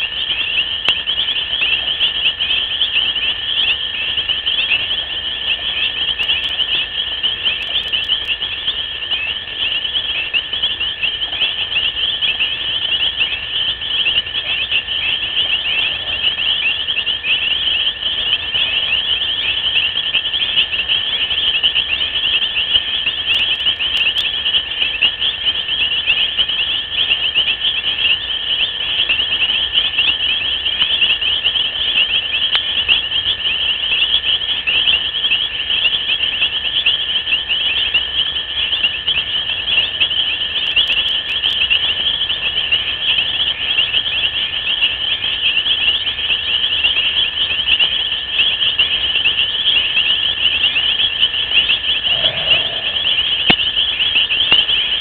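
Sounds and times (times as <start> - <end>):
high-pitched night insect chorus: 0.0 - 55.0
steady lower tone: 51.8 - 53.9.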